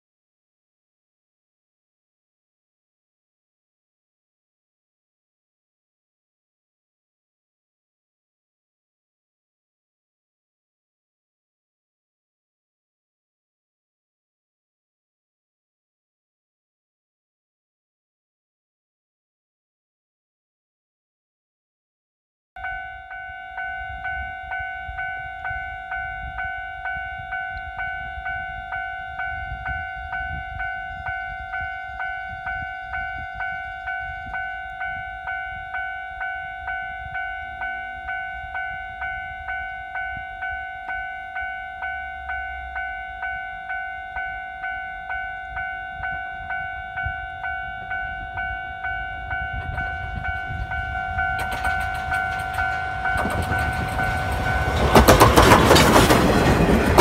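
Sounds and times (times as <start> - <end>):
level-crossing warning bell ringing: 22.6 - 57.0
steam train rumble: 46.0 - 57.0.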